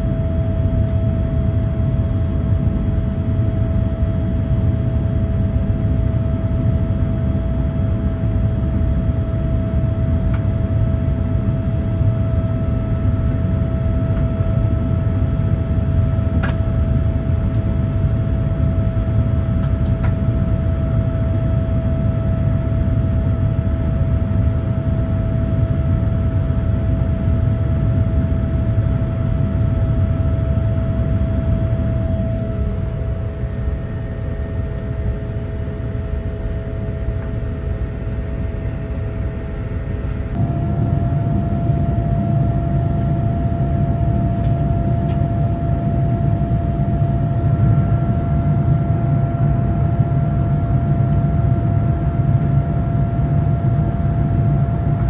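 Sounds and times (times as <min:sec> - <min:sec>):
airplane engine and airflow rumble: 0:00.0 - 0:55.0
steady mid-pitched tone: 0:40.3 - 0:45.6.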